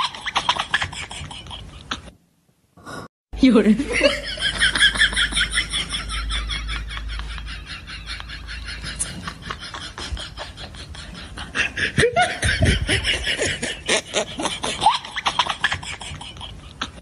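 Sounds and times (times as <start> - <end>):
person laughing: 3.8 - 17.0.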